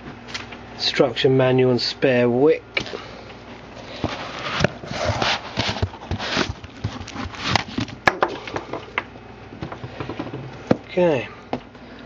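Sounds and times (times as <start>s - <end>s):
cardboard and foam rustling: 3.8s - 8.0s.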